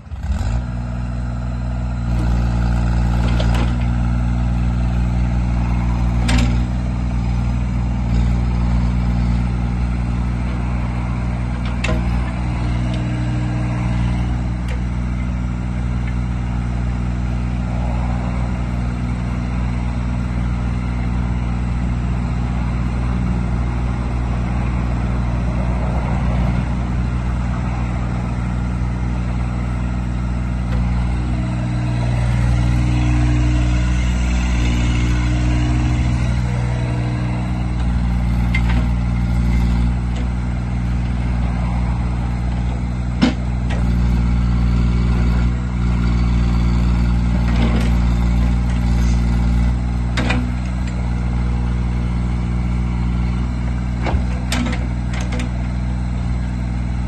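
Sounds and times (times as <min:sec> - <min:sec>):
diesel engine running: 0:00.0 - 0:57.0
hydraulic excavator arm working: 0:11.2 - 0:16.2, 0:29.8 - 0:41.4, 0:42.0 - 0:55.9
sharp metal clunks: 0:43.2 - 0:43.8.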